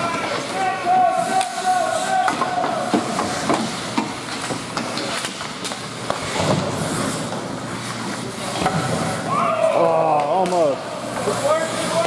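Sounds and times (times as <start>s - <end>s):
hockey sticks and puck clacking: 0.0s - 12.0s
skates hissing on ice: 0.2s - 9.5s.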